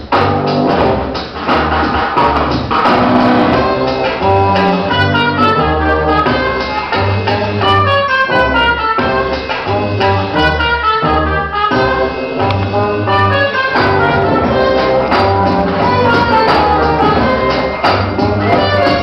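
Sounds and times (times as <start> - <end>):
belly dance music over loudspeaker: 11.8 - 19.0.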